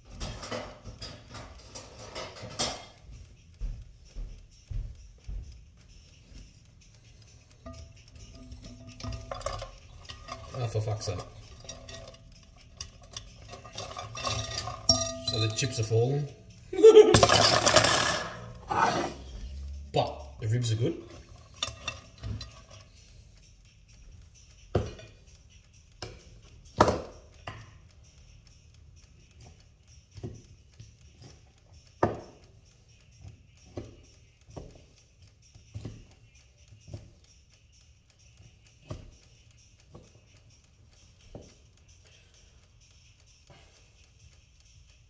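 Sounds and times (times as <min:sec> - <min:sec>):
utensil clinking on plate: 0:07.6 - 0:16.0.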